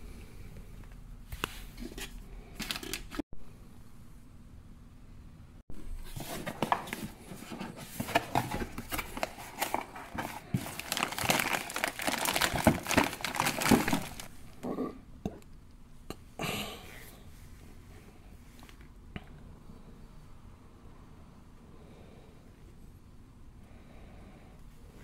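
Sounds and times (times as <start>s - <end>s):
plastic wrapping crinkling: 6.2s - 14.6s.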